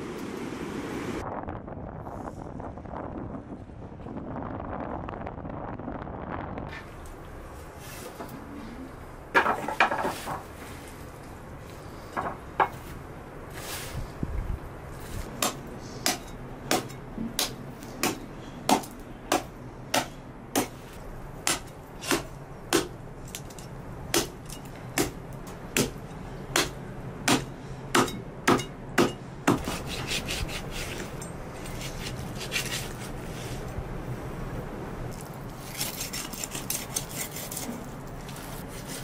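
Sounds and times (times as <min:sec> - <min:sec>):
cleaver chopping ribs on wood: 0:15.4 - 0:20.8, 0:21.4 - 0:23.0, 0:25.0 - 0:25.2, 0:25.8 - 0:26.0, 0:26.6 - 0:29.8.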